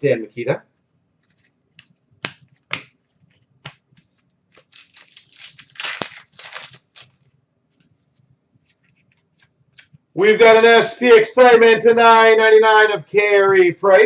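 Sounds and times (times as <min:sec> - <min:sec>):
trading cards snapping: 0:01.2 - 0:03.0, 0:03.6 - 0:07.2.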